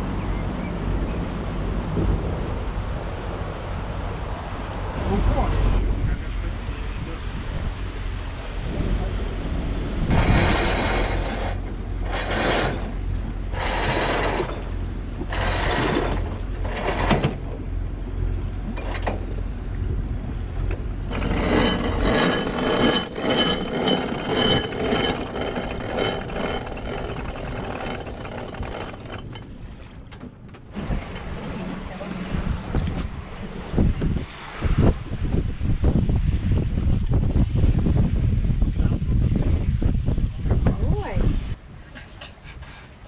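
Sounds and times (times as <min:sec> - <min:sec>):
boat engine hum: 0:00.0 - 0:34.6
winch clicking and ratcheting: 0:21.1 - 0:29.5.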